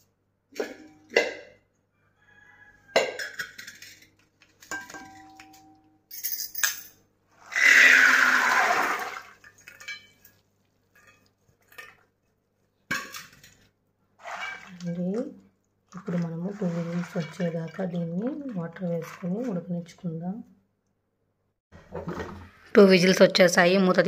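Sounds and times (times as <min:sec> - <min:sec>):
metal pots clinking and knocking: 0:00.5 - 0:01.6, 0:02.9 - 0:05.9
water pouring into pot: 0:07.7 - 0:09.8.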